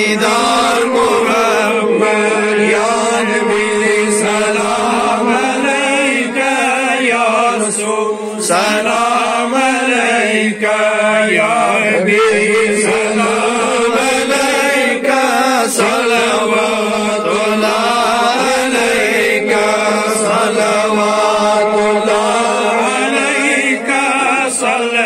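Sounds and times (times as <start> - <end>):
steady low drone: 0.0 - 9.5
man singing into a microphone: 0.0 - 25.0
men chanting in unison: 0.0 - 25.0.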